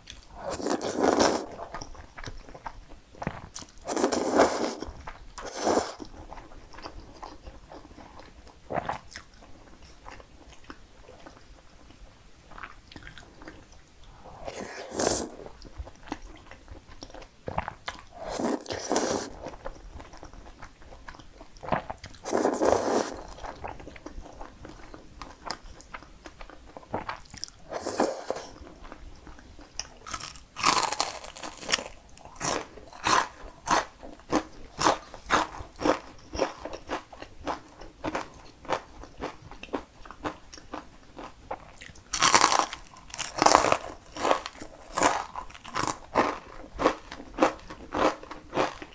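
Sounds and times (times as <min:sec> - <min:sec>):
slurping spaghetti: 0:00.3 - 0:01.9, 0:03.2 - 0:06.4, 0:14.2 - 0:15.7, 0:17.6 - 0:19.6, 0:21.7 - 0:23.7, 0:27.3 - 0:28.9
crunchy chewing: 0:14.4 - 0:48.9.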